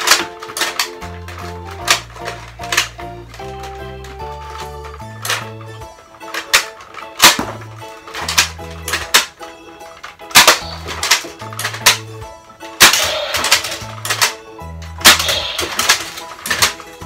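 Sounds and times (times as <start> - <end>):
dart blaster firing snaps: 10.3 - 12.1, 12.8 - 14.4, 15.0 - 16.8.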